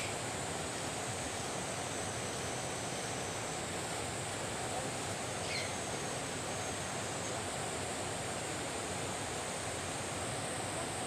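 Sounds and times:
faint high chirp: 5.4 - 5.8.

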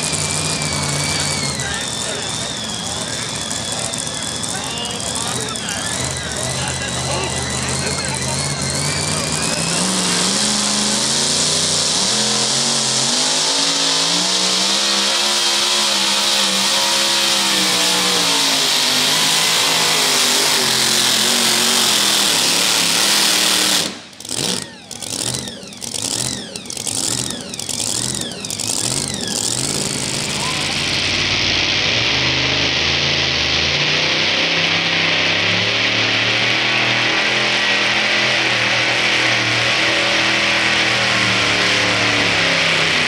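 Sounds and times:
supercharged truck engine revving: 0.0 - 43.0.

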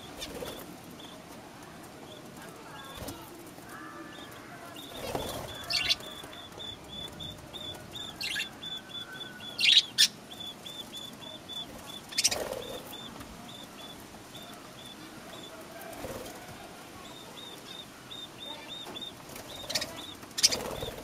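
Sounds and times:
budgerigars chirping: 4.1 - 15.6, 17.0 - 21.0.

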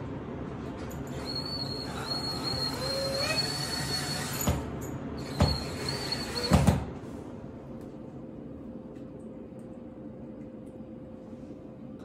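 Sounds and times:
cordless drill motor whining: 1.1 - 4.6, 5.2 - 6.7.

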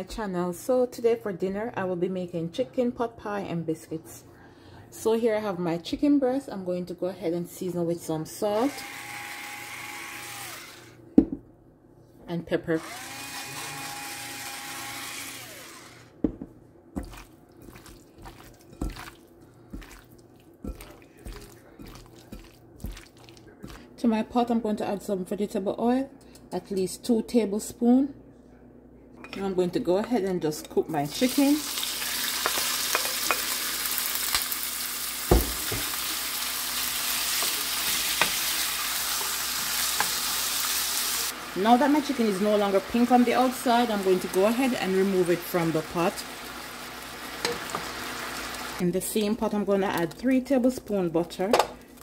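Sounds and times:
electric pepper grinder whirring: 8.5 - 11.0, 12.8 - 16.2, 31.6 - 42.4, 45.8 - 48.8
chicken sizzling in oil: 31.2 - 48.8
loud dull knock: 35.3 - 35.9.

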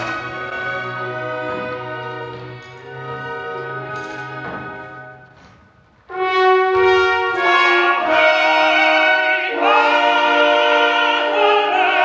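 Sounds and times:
orchestra: 0.0 - 12.0
operatic tenor singing: 6.2 - 12.0.

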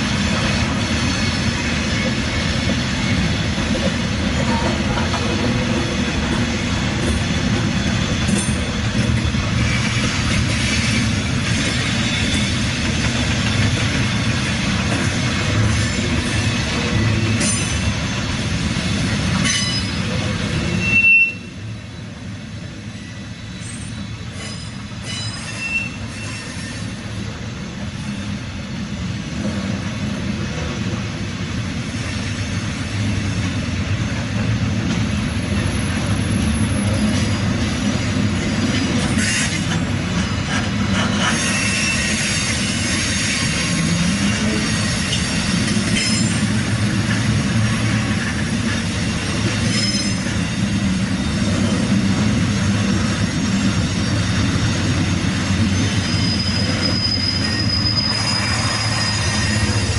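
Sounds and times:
clickety-clack over rail joints: 0.0 - 21.0, 29.0 - 59.9
train wheels rumbling on rail: 0.0 - 59.9
high wheel squeals: 19.4 - 22.1, 22.9 - 27.0, 40.2 - 46.6, 48.9 - 52.0, 53.2 - 59.9.

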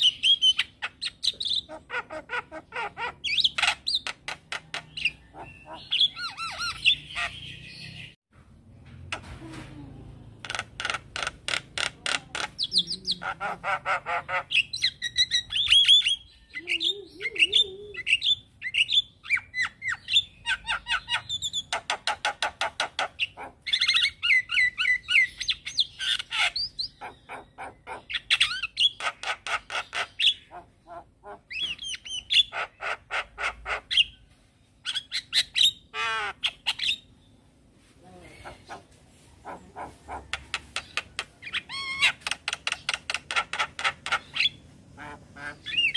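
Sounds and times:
bird song with rattling notes: 2.7 - 8.2, 18.1 - 30.7, 39.8 - 44.8.

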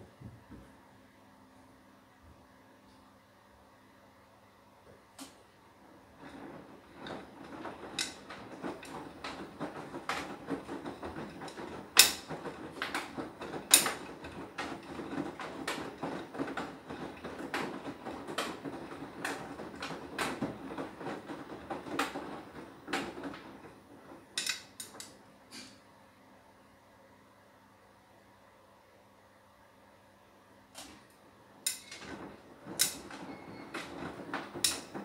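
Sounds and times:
washing machine tumbling: 5.0 - 25.9, 30.6 - 35.0
clicks and knocks in drum: 6.2 - 25.1, 31.7 - 35.0.

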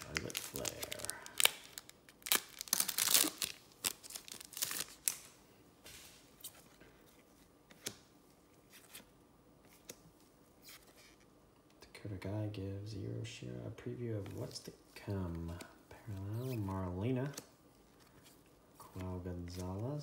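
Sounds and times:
wrapper crinkling: 0.0 - 5.4.

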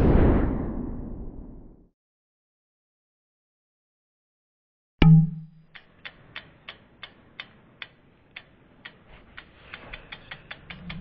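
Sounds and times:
clock-like ticking: 5.0 - 11.0.

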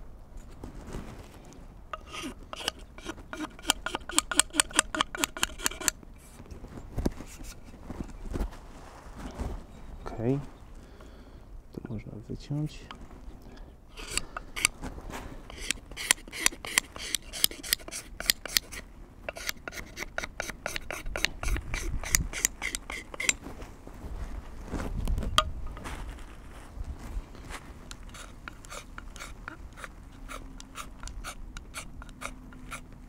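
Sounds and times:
knife scraping wooden handle: 1.9 - 6.0, 14.0 - 14.7, 15.5 - 23.4, 27.9 - 32.9.

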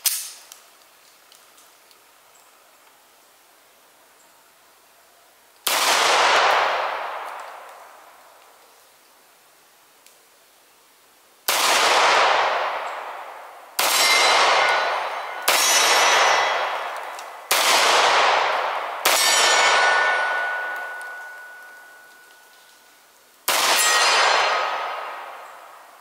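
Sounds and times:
pistol shots echoing: 5.7 - 7.9, 11.5 - 22.3, 23.5 - 26.0
ringing steel plates: 13.9 - 17.5, 19.1 - 22.6, 23.7 - 24.9.

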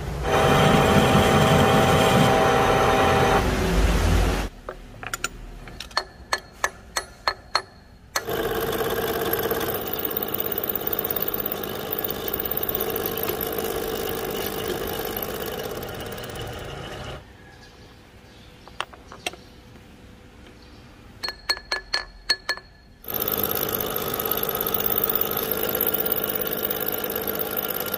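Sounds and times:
milling cutter cutting steel: 8.2 - 17.2, 23.0 - 27.9.

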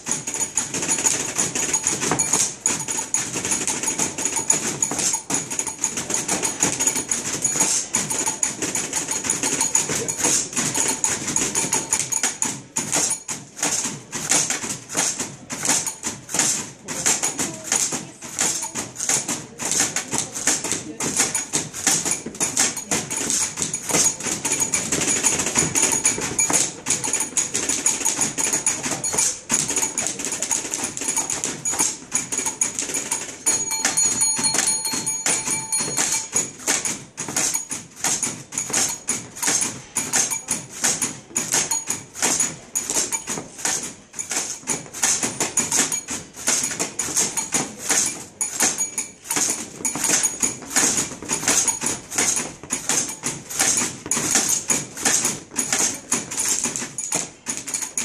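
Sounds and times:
ringing tone: 0.0 - 12.5, 21.2 - 40.6, 45.4 - 54.9
typewriters clattering rhythmically: 0.0 - 58.0.

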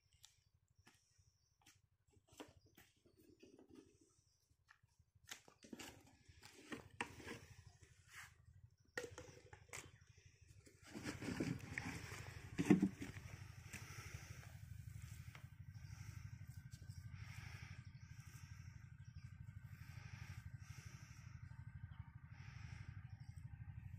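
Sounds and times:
faint low engine hum: 0.1 - 23.9
rustling and scraping of hose: 5.5 - 8.5, 10.6 - 17.0
footsteps in dry soil: 10.8 - 16.3.

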